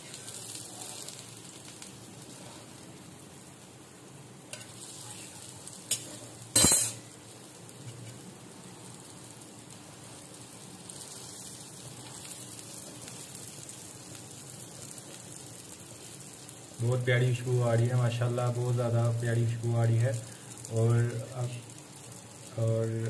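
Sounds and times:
faint frying sizzle: 0:00.0 - 0:23.0.

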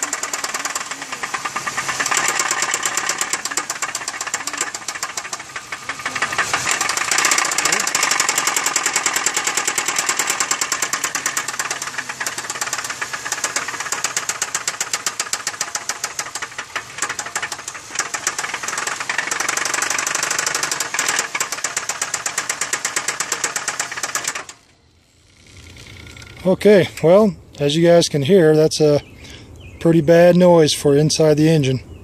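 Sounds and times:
car engine knocking: 0:00.0 - 0:24.7.

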